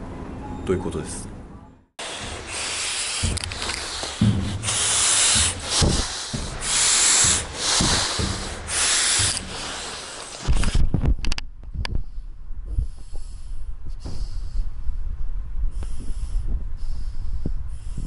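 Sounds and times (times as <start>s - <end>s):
breathing hissing through mask: 2.0s - 10.7s
low thuds: 2.0s - 17.7s.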